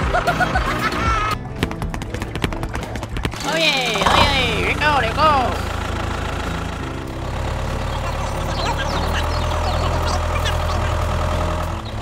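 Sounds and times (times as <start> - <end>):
tractor engine idling: 3.3 - 12.0.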